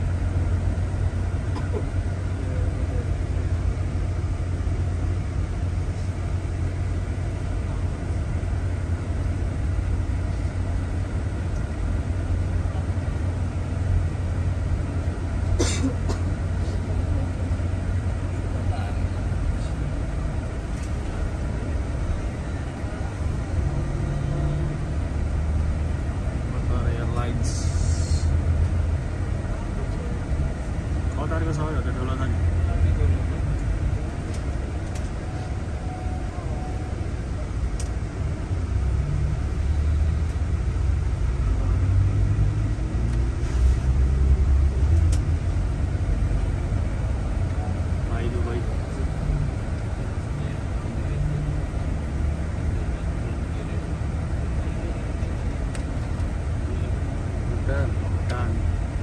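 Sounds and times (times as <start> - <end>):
bus engine rumble: 0.0 - 59.0.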